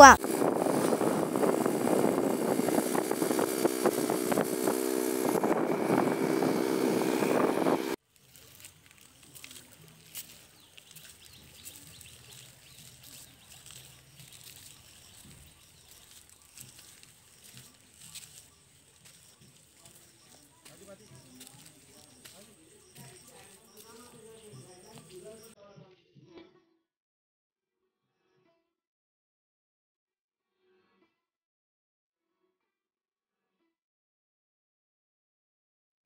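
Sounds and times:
engine drone: 0.0s - 8.0s.

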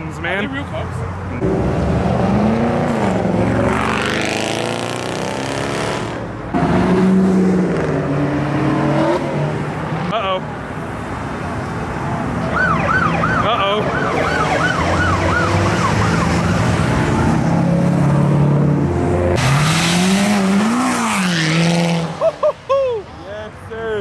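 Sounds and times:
car engine revving hard: 1.4s - 9.6s, 19.2s - 22.2s
police siren yelping: 12.4s - 17.4s.

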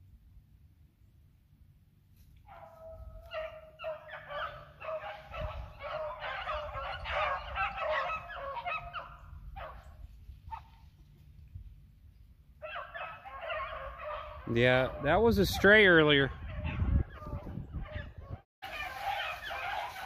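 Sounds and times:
pack of dogs baying: 2.5s - 10.8s, 12.6s - 20.0s.

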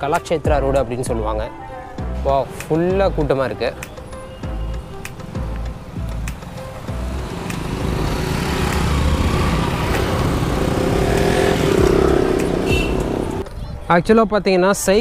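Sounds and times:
street traffic: 0.0s - 15.0s
motorbike engines: 4.0s - 13.5s.

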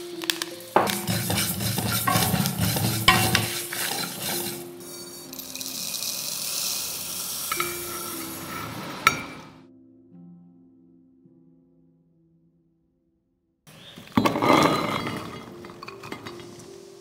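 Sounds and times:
soft steady hiss: 0.0s - 9.6s, 15.5s - 17.0s
seeds rattling against metal pan: 0.2s - 8.8s.

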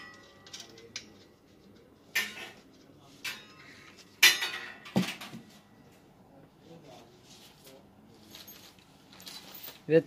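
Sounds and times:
metal tubes clanking together: 0.0s - 5.3s.

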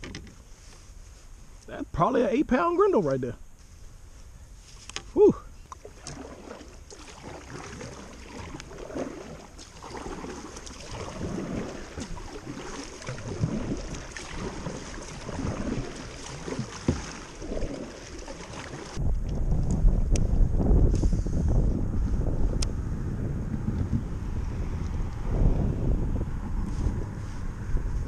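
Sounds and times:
paddle splashing in water: 4.8s - 19.4s
wind buffeting microphone: 7.3s - 28.0s.

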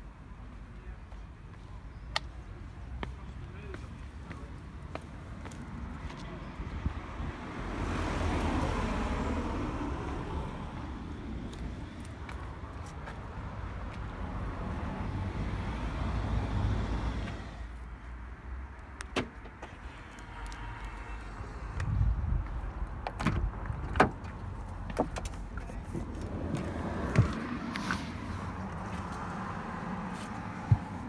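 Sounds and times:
car door clicks and knocks: 23.1s - 24.3s.

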